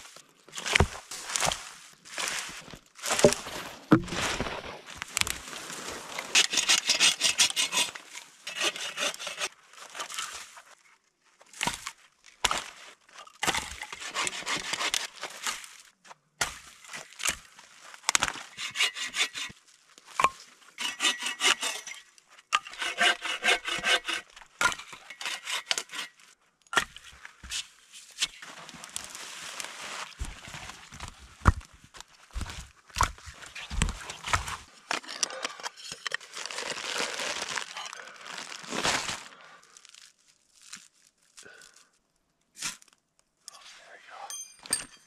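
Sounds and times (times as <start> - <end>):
hand saw cutting wood: 6.3 - 9.5, 13.7 - 15.2, 18.4 - 19.5, 20.8 - 22.0, 22.6 - 26.2.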